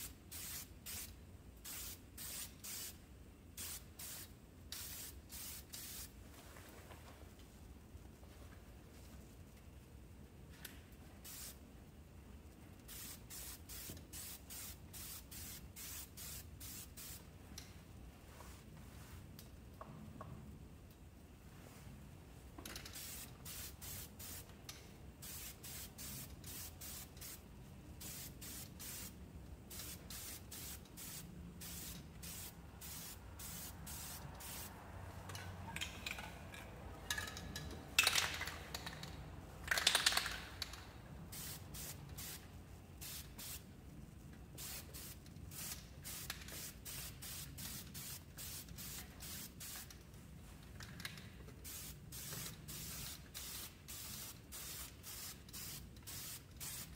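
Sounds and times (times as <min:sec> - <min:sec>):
spray can hissing bursts: 0:00.0 - 0:03.0, 0:03.6 - 0:06.1, 0:11.2 - 0:11.6, 0:12.9 - 0:17.2, 0:23.0 - 0:24.5, 0:25.2 - 0:34.8, 0:41.3 - 0:42.4, 0:43.0 - 0:43.6, 0:44.6 - 0:49.9, 0:51.6 - 0:56.9.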